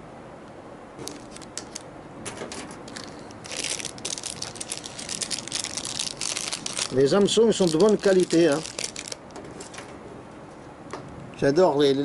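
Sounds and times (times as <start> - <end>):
plastic crinkling: 1.0 - 1.9, 2.5 - 9.8.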